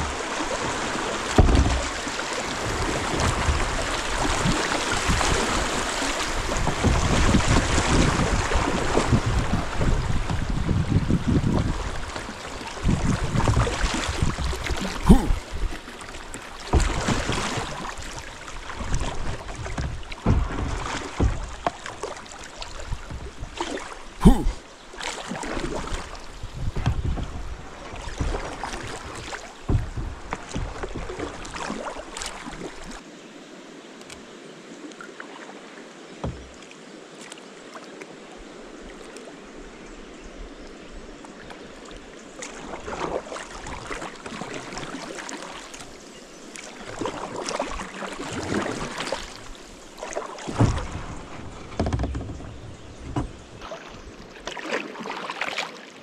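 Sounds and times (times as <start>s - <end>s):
paddle strokes splashing: 0.0s - 33.0s, 40.9s - 56.0s
gentle water noise: 0.0s - 56.0s.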